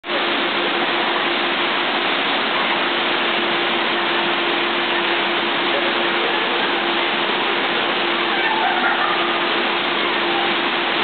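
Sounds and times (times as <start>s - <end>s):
steady hum: 0.0s - 11.0s
water pouring from waterfall: 0.0s - 11.0s.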